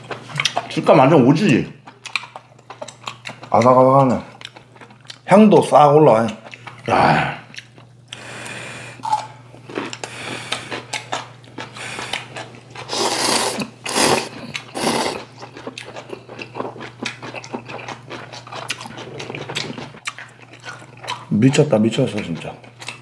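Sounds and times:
wet chewing clicks: 0.0s - 5.3s, 6.2s - 6.9s, 7.5s - 8.2s, 9.0s - 23.0s
people slurping noodles: 11.7s - 15.3s.

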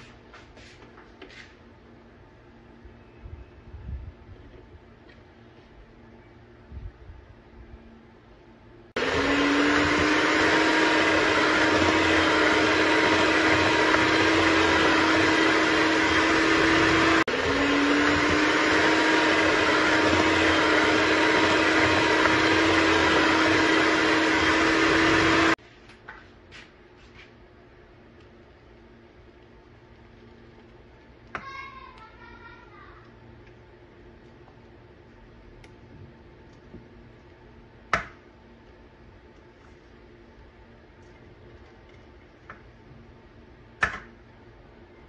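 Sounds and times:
electric hand mixer whine: 9.0s - 25.6s.

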